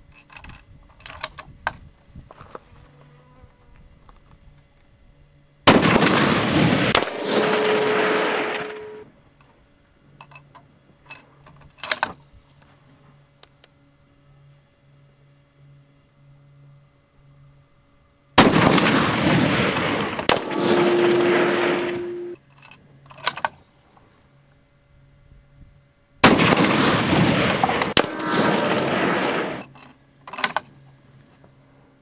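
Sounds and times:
rifle shots with rolling echo: 5.7 - 9.0, 18.4 - 22.4, 26.2 - 29.7
bullet hitting steel plates: 19.8 - 22.4, 27.5 - 29.8.

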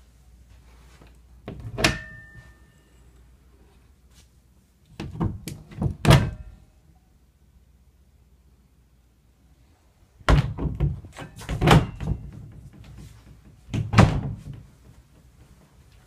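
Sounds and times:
closet doors thudding shut: 5.0 - 6.4, 10.3 - 12.6, 13.7 - 14.6.

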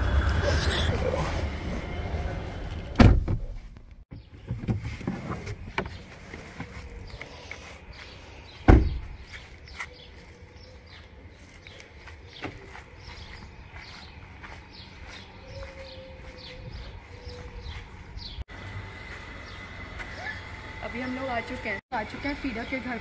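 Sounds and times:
car door slamming: 2.9 - 3.5, 8.7 - 9.0.

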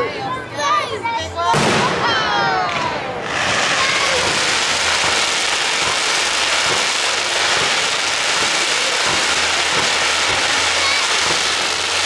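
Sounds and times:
fireworks crackling hiss: 1.6 - 12.0.

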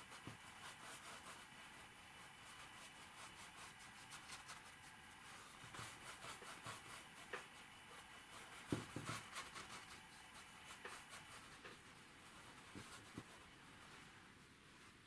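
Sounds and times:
paintbrush scratching canvas: 0.0 - 15.0.

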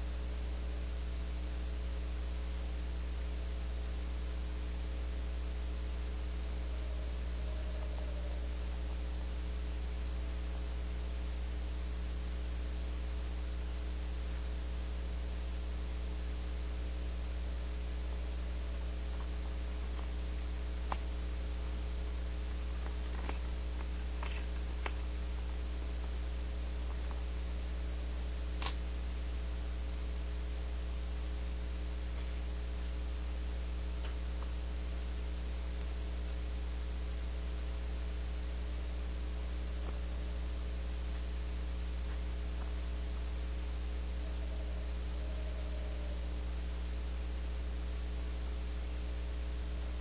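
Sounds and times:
electrical mains hum: 0.0 - 50.0
faint clicks and scratches: 18.6 - 28.8.

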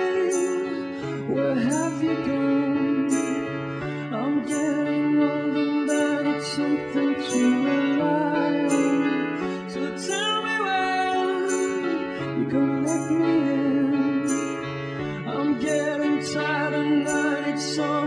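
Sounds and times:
song with vocals and beat: 0.0 - 18.0.

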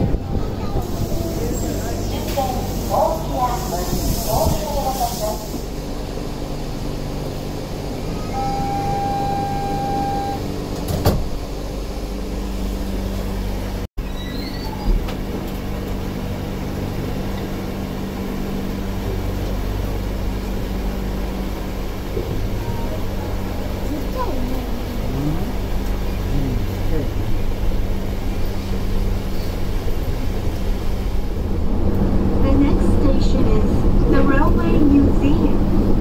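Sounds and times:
train car running hum: 0.0 - 36.0
electronic tone: 8.3 - 10.4
low motor drone: 15.6 - 29.2.

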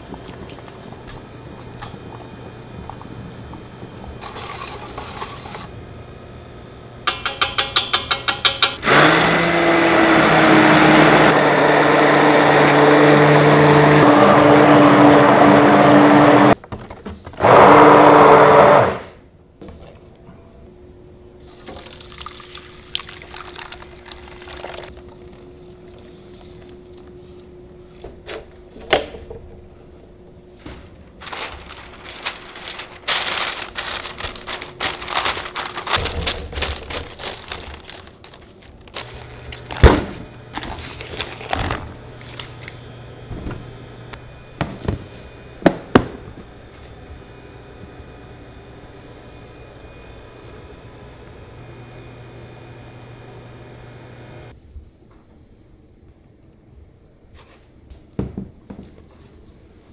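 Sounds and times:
loud whirring with low hum: 0.0 - 7.2, 17.3 - 57.2
paper crinkling and rustling: 30.7 - 42.7.

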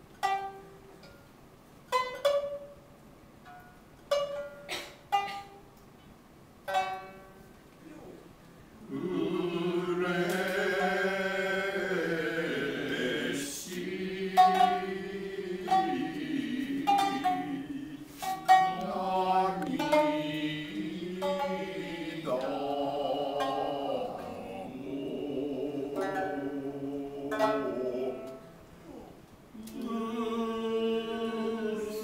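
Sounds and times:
shamisen plucks: 0.0 - 8.2, 8.8 - 29.0
voices singing long notes: 8.8 - 32.0.

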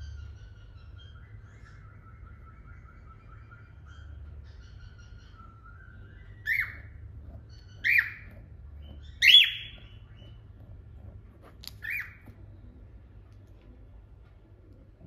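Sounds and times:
cockatiels chirping: 0.0 - 10.7, 11.6 - 12.9.

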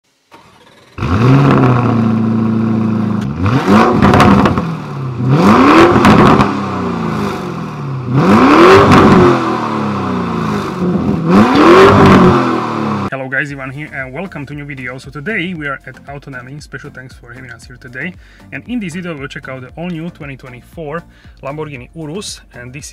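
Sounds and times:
car engine idling and revving: 0.4 - 13.1.

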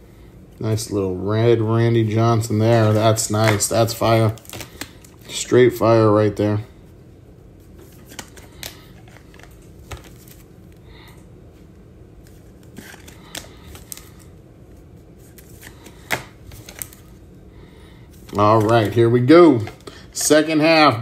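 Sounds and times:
faint low hum: 0.0 - 21.0
cards clicking and tapping: 7.8 - 10.4, 15.3 - 17.0.

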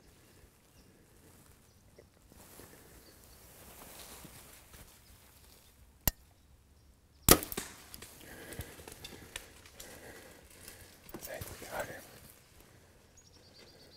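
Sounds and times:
animal rustling through dry leaves: 2.3 - 5.8
crack of arrow striking: 7.3 - 8.1.

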